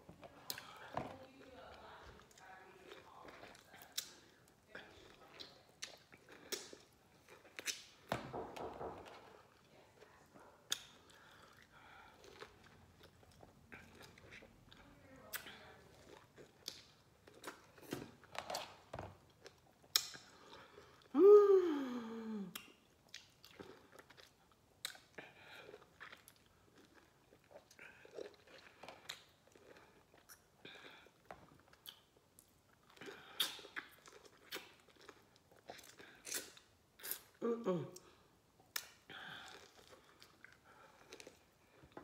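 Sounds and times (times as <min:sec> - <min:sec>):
short vocal sound falling in pitch: 0:21.1 - 0:22.6
biting and chewing lemon: 0:22.5 - 0:37.4.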